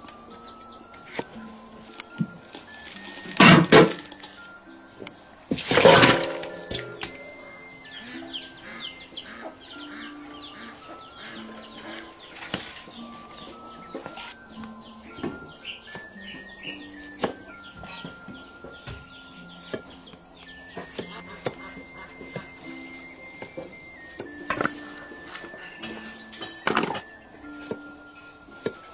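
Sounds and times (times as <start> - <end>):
soft background music: 0.0 - 28.9
cleaver chopping on wooden block: 20.8 - 22.5.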